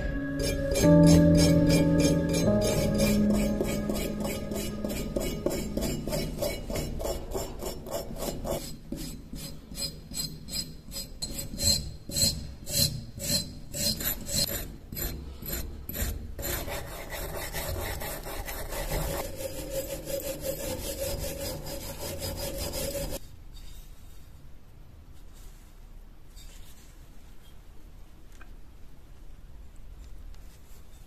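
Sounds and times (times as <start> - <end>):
hand tool scraping rust off metal: 0.3 - 23.2.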